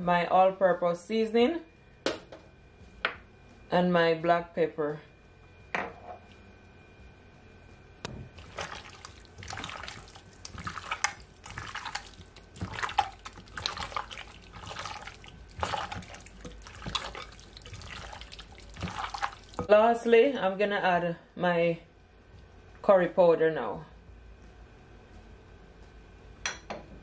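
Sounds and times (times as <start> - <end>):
hand squelching wet raw meat: 8.4 - 19.6.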